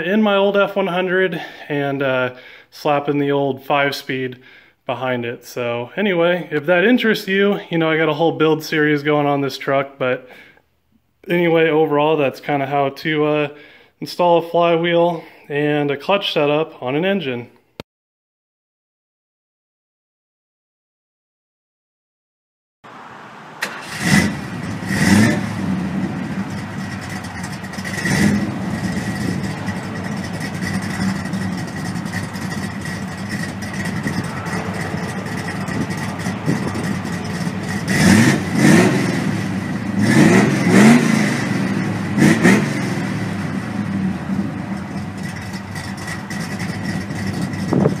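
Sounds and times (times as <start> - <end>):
car engine revving and idling: 22.9 - 48.0.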